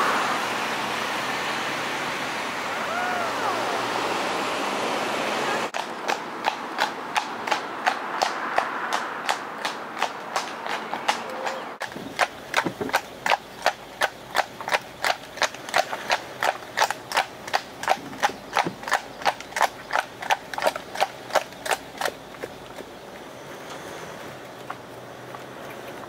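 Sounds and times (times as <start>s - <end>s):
horse hooves trotting on tarmac: 5.7s - 26.0s.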